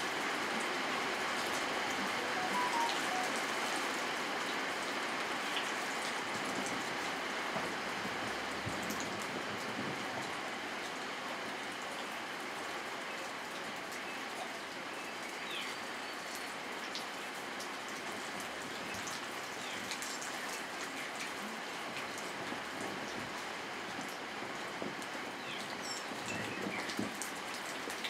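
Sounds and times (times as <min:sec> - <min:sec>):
steady rain falling: 0:00.0 - 0:28.0
raindrops ticking close by: 0:16.3 - 0:28.0.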